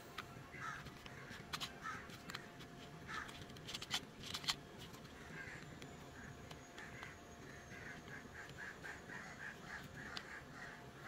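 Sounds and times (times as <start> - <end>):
plastic toy parts clicking and tapping: 0.1 - 8.6.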